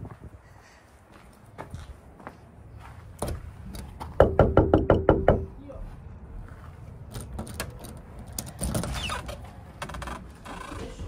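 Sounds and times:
knock on wooden door: 4.2s - 5.5s.

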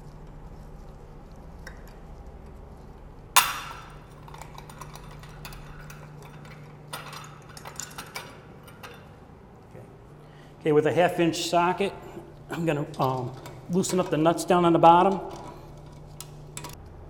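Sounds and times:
metallic clink: 3.4s - 9.1s.

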